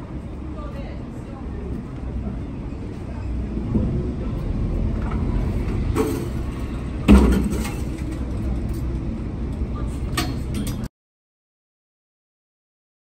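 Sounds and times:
ferry engine rumbling: 0:00.0 - 0:10.9
gangway clanking onto deck: 0:03.4 - 0:09.0.

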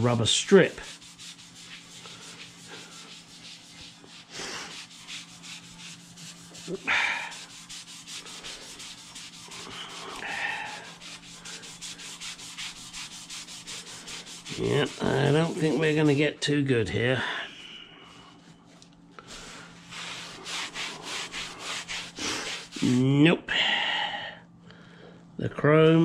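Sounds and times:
cloth rubbing metal: 0:00.0 - 0:16.2, 0:19.3 - 0:23.1
steady low hum: 0:00.0 - 0:26.0.

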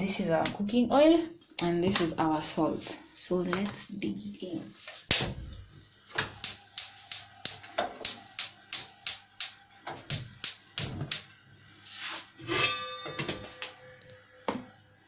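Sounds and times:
pot lid ringing: 0:12.5 - 0:13.9.

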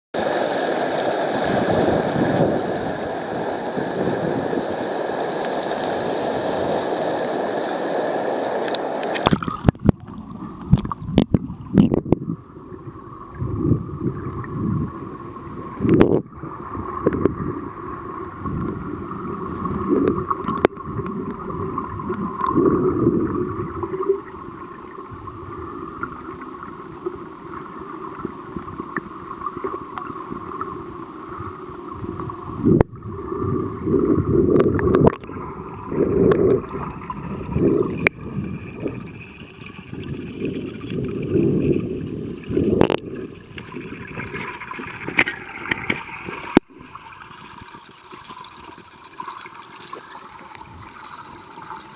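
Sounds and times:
underwater rushing hiss: 0:00.2 - 0:10.6
bubbling and churning water: 0:00.2 - 0:51.9.

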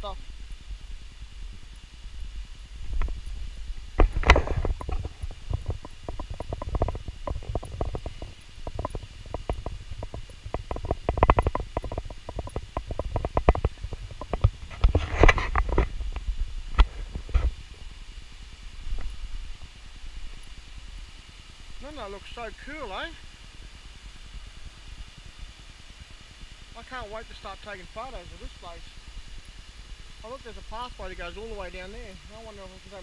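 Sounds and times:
footsteps: 0:02.8 - 0:17.9.

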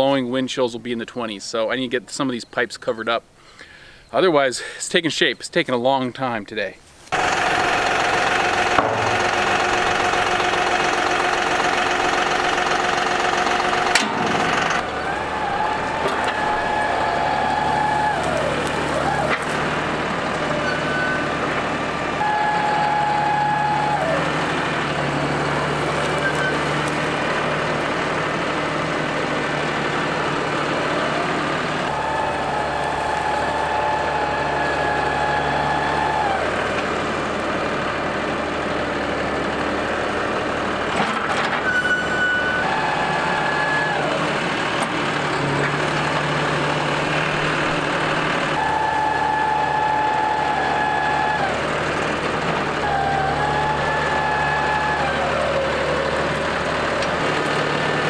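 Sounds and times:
blade dragging over dirt: 0:06.8 - 0:21.8
tractor engine running: 0:06.8 - 0:58.0.

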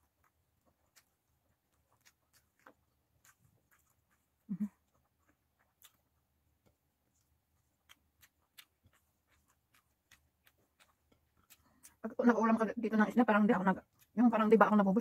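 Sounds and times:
fingers picking at food: 0:00.0 - 0:12.1
mouth clicks of chewing: 0:00.2 - 0:12.0.

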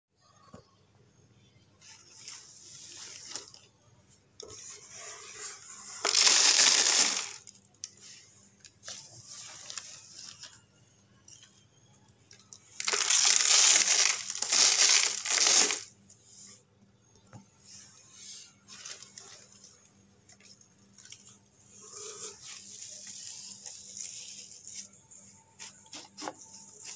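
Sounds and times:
hand scooping wood shavings: 0:04.5 - 0:08.2, 0:12.8 - 0:15.9
plastic bag crinkling: 0:06.0 - 0:07.6, 0:12.5 - 0:15.9.

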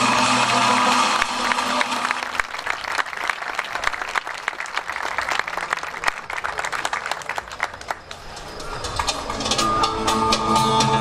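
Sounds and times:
audience applause: 0:00.0 - 0:09.4
live band music: 0:09.3 - 0:11.0.

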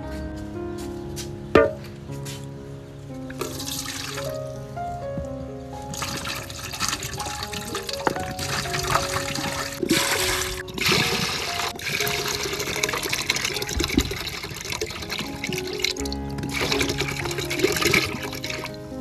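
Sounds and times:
background music with held notes: 0:00.0 - 0:19.0
coconut water pouring into pot: 0:03.4 - 0:04.3, 0:05.9 - 0:18.7.

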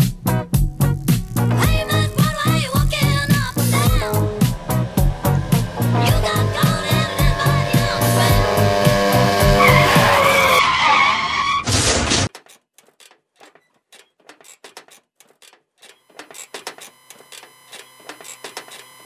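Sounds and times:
soft music with ticking beat: 0:00.0 - 0:10.3
faint ticking: 0:00.9 - 0:09.7
moped tyres squealing: 0:01.1 - 0:12.3.

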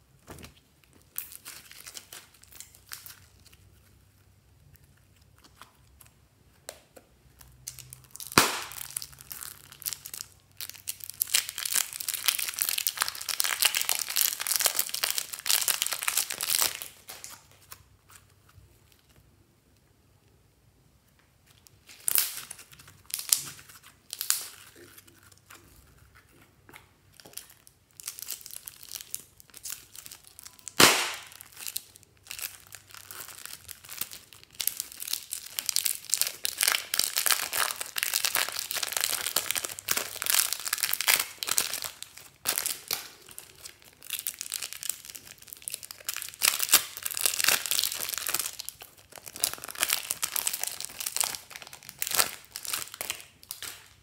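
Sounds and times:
slime crackling: 0:00.5 - 0:19.1, 0:21.6 - 0:54.0
plastic bag crinkling: 0:07.6 - 0:17.8, 0:27.1 - 0:54.0
sharp pops: 0:08.4 - 0:08.8, 0:30.8 - 0:31.3.

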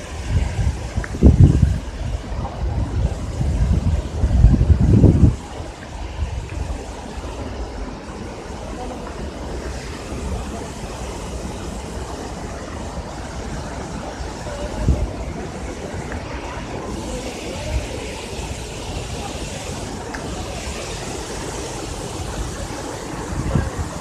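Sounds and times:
waterfall roaring: 0:00.0 - 0:24.0
wind buffeting microphone: 0:00.0 - 0:24.0.

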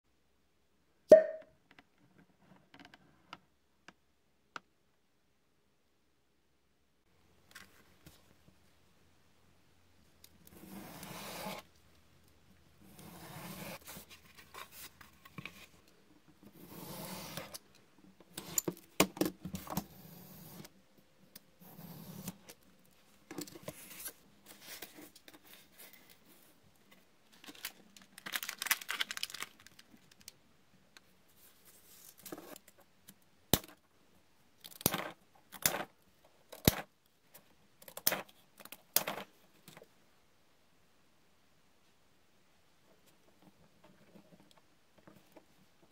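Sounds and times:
utility knife cutting foam board: 0:10.6 - 0:11.6, 0:12.9 - 0:13.8.

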